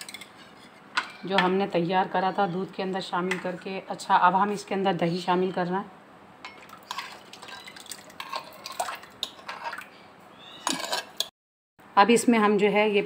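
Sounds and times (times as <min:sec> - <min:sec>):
yogurt plopping: 0:06.5 - 0:09.9.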